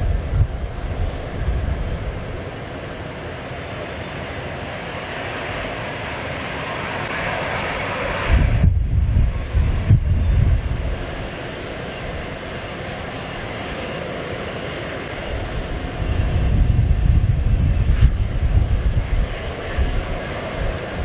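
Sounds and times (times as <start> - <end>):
jet engines taxiing: 0.0 - 21.0.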